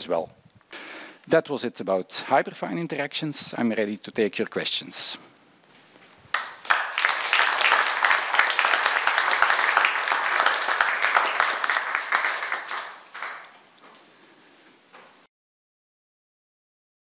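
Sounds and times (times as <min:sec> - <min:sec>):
audience applauding: 0:06.3 - 0:13.8.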